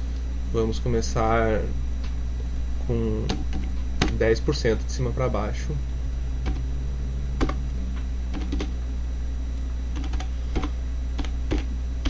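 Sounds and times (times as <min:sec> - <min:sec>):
low hum: 0:00.0 - 0:12.0
keyboard typing: 0:06.4 - 0:06.6, 0:07.4 - 0:07.6, 0:08.3 - 0:08.8, 0:09.9 - 0:11.7.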